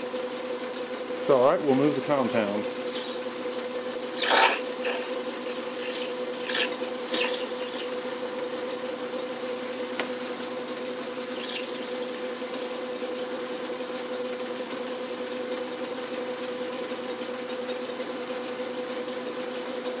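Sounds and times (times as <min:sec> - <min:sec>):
metal lathe humming: 0:00.0 - 0:18.8.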